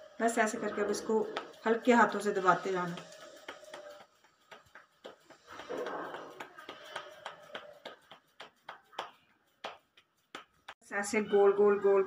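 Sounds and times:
wet fingers patting dough: 1.2s - 10.8s.

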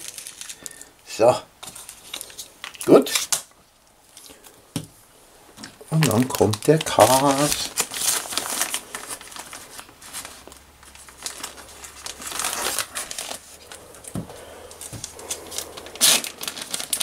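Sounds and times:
plastic pack crinkling: 0.0s - 1.0s, 1.6s - 4.6s, 5.6s - 17.0s.

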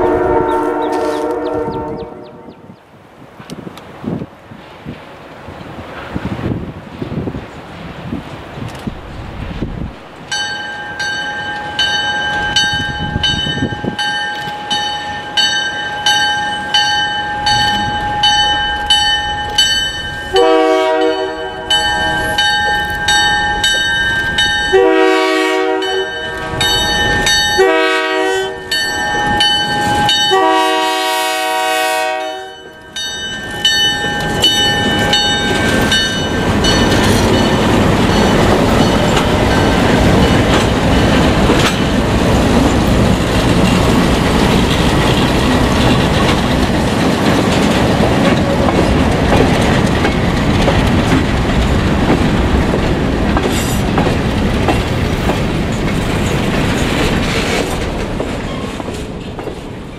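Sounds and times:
locomotive horn: 0.0s - 2.7s, 20.3s - 22.6s, 24.7s - 32.7s
crossing warning bell ringing: 10.2s - 57.4s
locomotive engine rumble: 32.9s - 59.9s.

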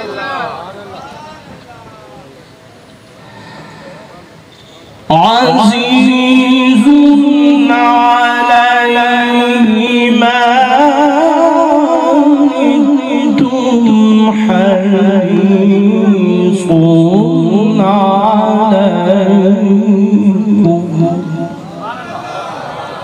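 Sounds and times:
man reciting melodically: 5.1s - 22.2s.

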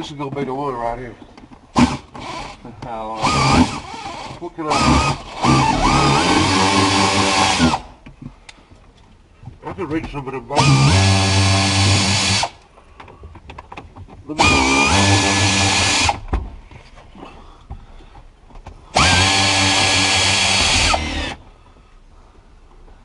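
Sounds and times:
power drill whining: 1.8s - 8.0s, 10.6s - 12.6s, 14.4s - 16.3s, 18.9s - 21.4s.

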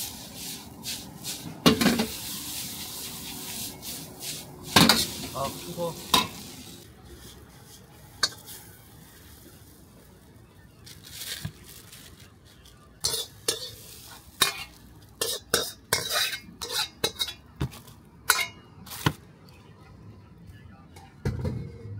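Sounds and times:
metal ladle scraping a wok: 0.0s - 9.0s, 13.0s - 17.5s.

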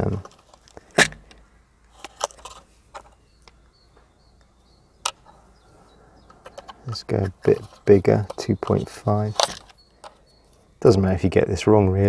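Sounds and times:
metal drill bits rattling: 7.5s - 10.2s.

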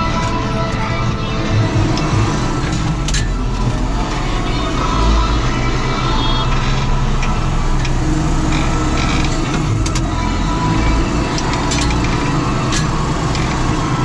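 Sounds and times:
sharp clicks and rattles: 0.0s - 14.0s
tractor diesel engine running: 0.0s - 14.0s.

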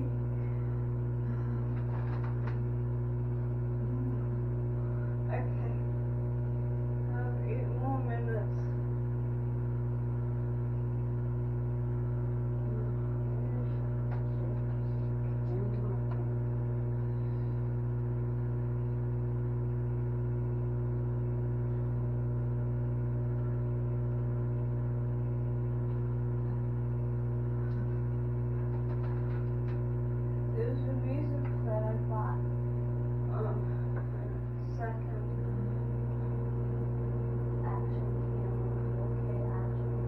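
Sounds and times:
microwave oven humming: 0.0s - 40.0s
faint clicks and knocks: 1.7s - 2.8s, 28.6s - 29.9s.

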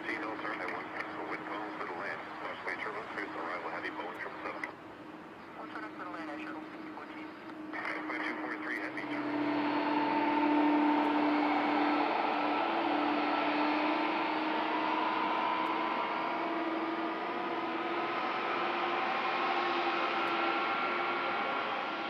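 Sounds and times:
jet engines running: 0.0s - 22.0s.

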